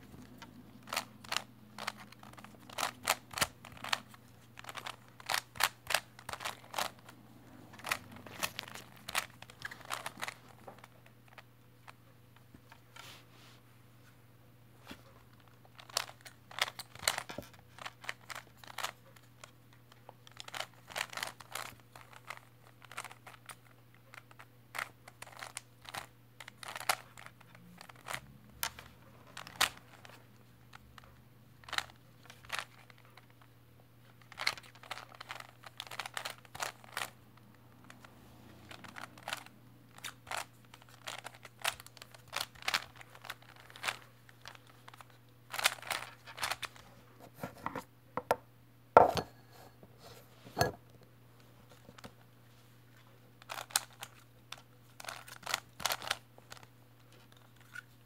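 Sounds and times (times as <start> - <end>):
puzzle cube plastic clicking: 0.2 - 7.1, 20.3 - 30.1, 38.7 - 46.7, 53.4 - 56.7.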